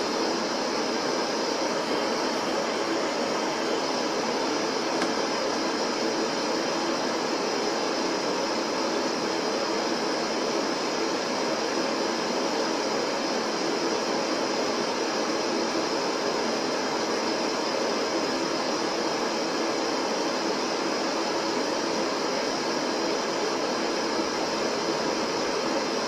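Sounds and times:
electronic static hiss: 0:00.0 - 0:26.0.

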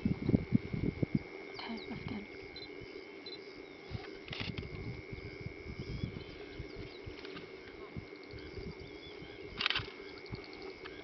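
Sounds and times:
faint bird chirps: 0:05.2 - 0:11.0.

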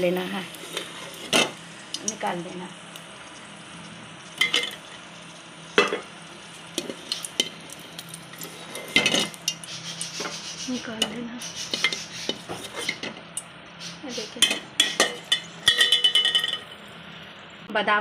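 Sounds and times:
faint sizzle: 0:00.0 - 0:18.0.

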